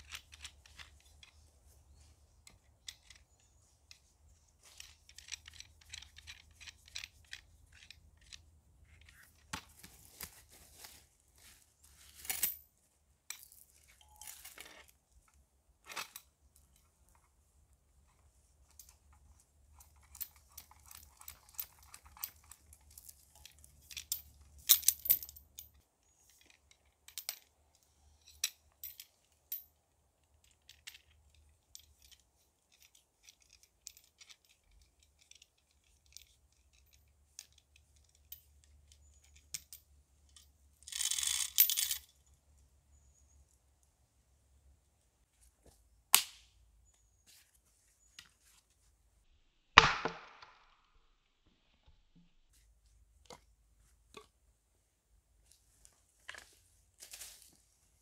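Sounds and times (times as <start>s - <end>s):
rustling: 0.0s - 12.7s, 55.4s - 58.0s.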